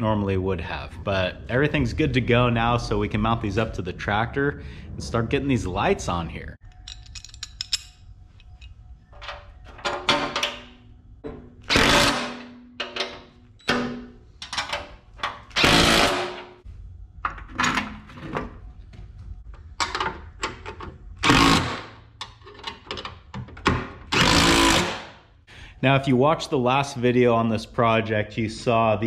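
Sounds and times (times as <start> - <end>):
metal clinks of wrench and bolts: 6.6 - 10.7
impact driver bursts: 11.7 - 12.4, 15.6 - 16.4, 24.2 - 25.1.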